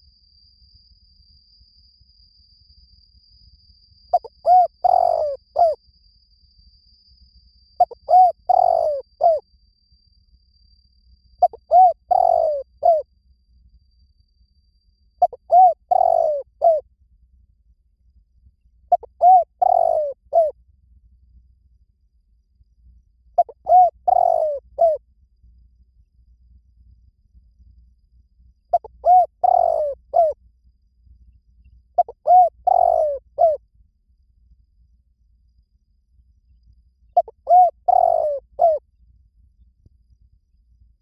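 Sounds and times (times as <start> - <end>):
dove cooing: 4.1 - 5.8, 7.8 - 9.4, 11.4 - 13.0, 15.2 - 16.8, 18.9 - 20.5, 23.4 - 25.0, 28.7 - 30.4, 32.0 - 33.6, 37.2 - 38.8.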